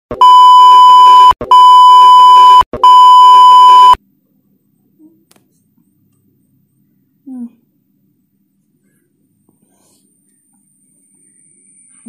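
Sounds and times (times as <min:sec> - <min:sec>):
electronic beep tone: 0:00.1 - 0:04.0.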